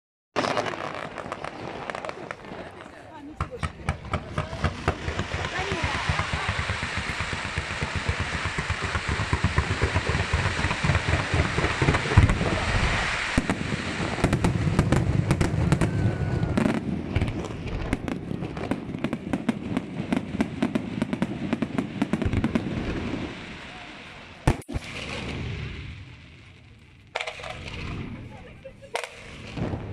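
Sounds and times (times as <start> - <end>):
fireworks bangs and crackling pops: 0.4 - 29.9
loud firework boom: 3.5 - 19.1, 29.2 - 29.9.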